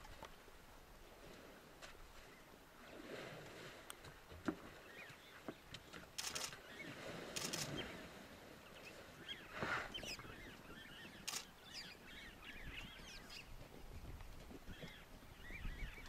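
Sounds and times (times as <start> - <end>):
birds chirping: 4.7 - 16.0
rapid clicking bursts: 6.2 - 6.6.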